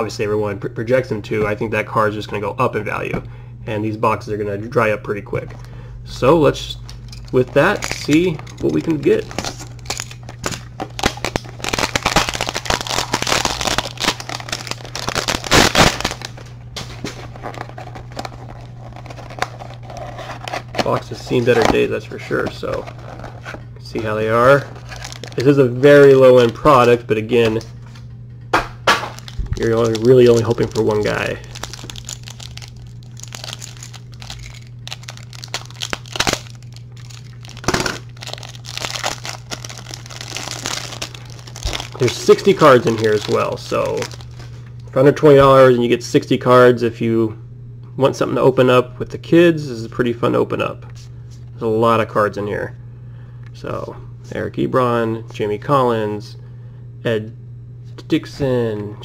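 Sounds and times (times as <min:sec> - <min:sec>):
steady low hum: 0:00.0 - 0:59.0
cardboard and wrapping tearing: 0:07.2 - 0:16.4, 0:24.8 - 0:25.6, 0:29.1 - 0:44.4.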